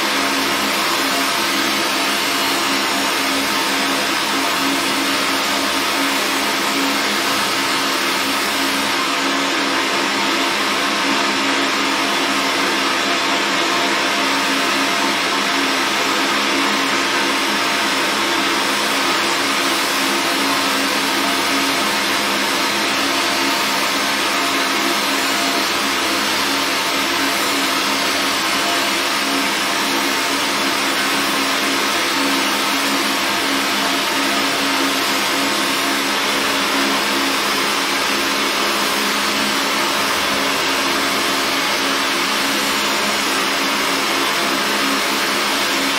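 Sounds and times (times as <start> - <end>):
fan whirring: 0.0 - 45.9.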